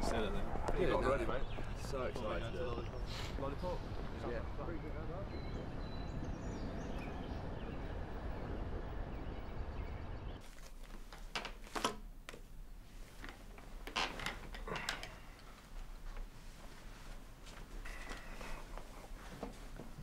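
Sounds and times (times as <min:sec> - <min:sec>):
outdoor background noise: 0:00.0 - 0:20.0
paper rustling: 0:10.4 - 0:12.4.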